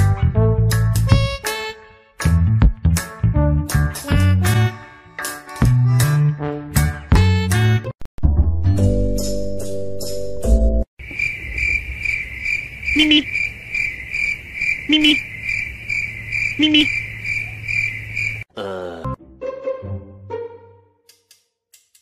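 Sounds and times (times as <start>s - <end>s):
cricket chirping: 11.0s - 18.5s.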